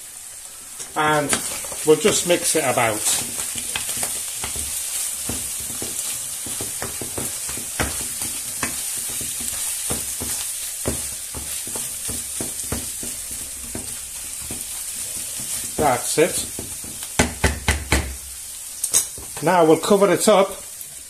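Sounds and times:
food sizzling in frying pan: 0.0s - 21.0s
wooden spoon scraping pan: 0.8s - 17.1s.

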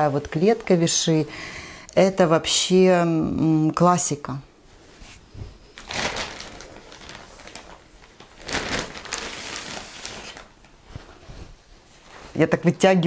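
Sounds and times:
plastic bag crinkling: 5.8s - 10.8s.

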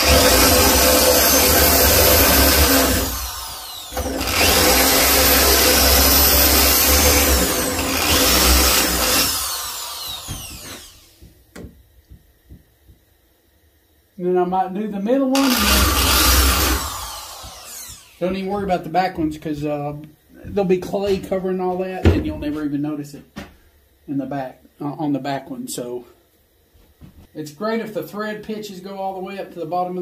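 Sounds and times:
electric drill boring into bone: 0.0s - 11.3s, 15.4s - 18.4s.

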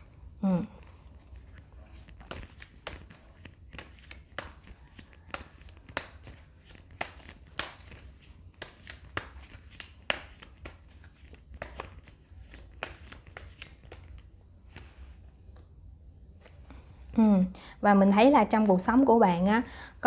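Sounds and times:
cards being shuffled: 0.7s - 15.7s.

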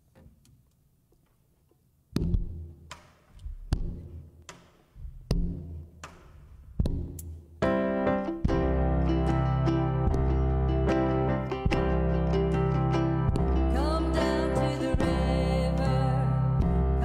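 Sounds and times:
keyboard chord: 7.6s - 17.0s
deep drum thumps: 8.4s - 9.0s, 13.2s - 14.0s.

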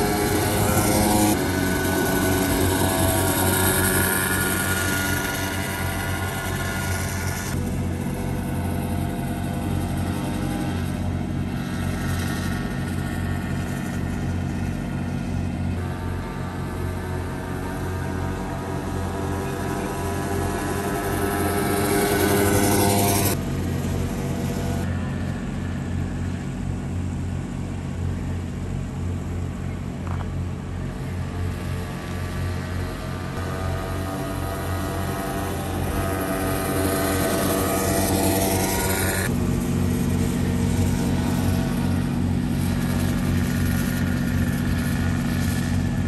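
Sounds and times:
go-kart engine drone: 0.0s - 46.0s.

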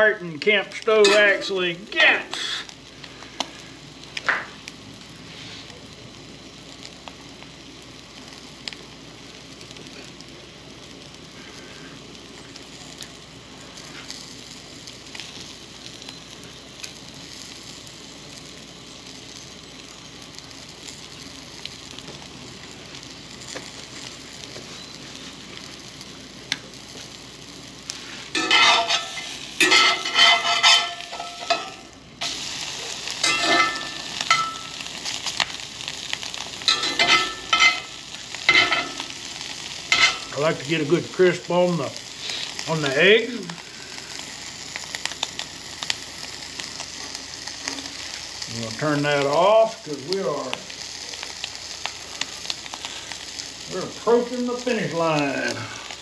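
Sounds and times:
egg sizzling in skillet: 0.0s - 56.0s
metal spatula scraping pan: 28.4s - 31.8s.

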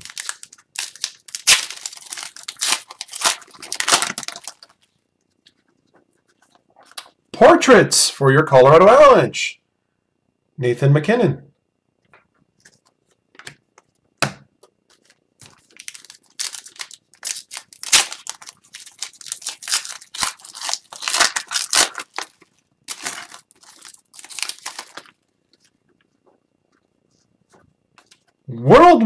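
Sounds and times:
foil wrapper tearing and crinkling: 0.0s - 5.0s, 14.9s - 25.8s
scratchy rustling of cards: 14.9s - 28.4s.

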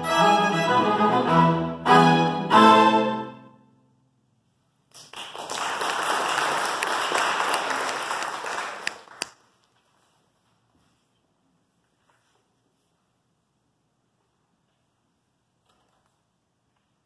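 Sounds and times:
audience applauding: 5.0s - 9.4s.

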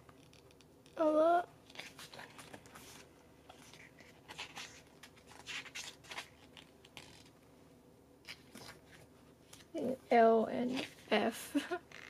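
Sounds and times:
paper pages rustling: 1.7s - 7.4s, 8.3s - 9.8s.

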